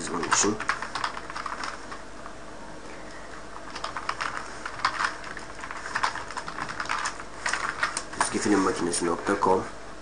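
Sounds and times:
typing on computer keyboard: 0.1 - 2.0, 3.7 - 8.4.

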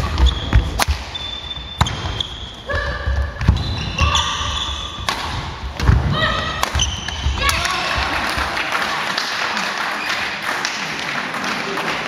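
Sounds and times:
rackets striking shuttlecock: 0.0 - 2.2, 5.0 - 7.6
shoes squeaking on wooden court: 0.0 - 5.1, 6.7 - 7.8.

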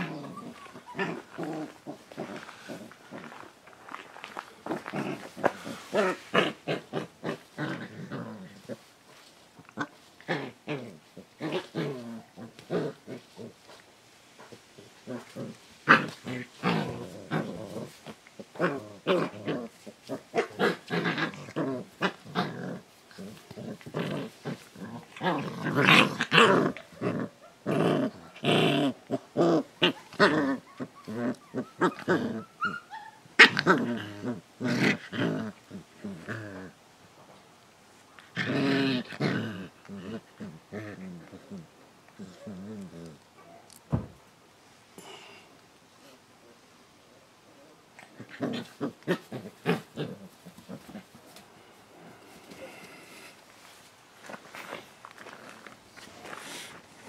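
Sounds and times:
puppies yipping: 0.0 - 1.5
puppies growling and yapping: 0.0 - 3.6, 4.6 - 8.9, 9.6 - 13.8, 14.4 - 36.8, 48.0 - 53.4.

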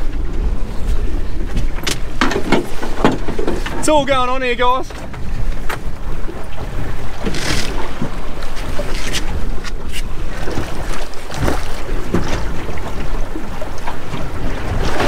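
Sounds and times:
water washing along boat hull: 0.0 - 15.0
wind buffeting microphone: 0.0 - 15.0.

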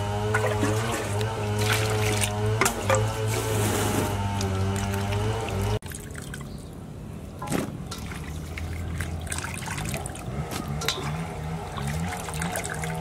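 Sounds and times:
water splashing in a steel bowl: 0.3 - 3.2, 4.3 - 6.6, 7.4 - 13.0.

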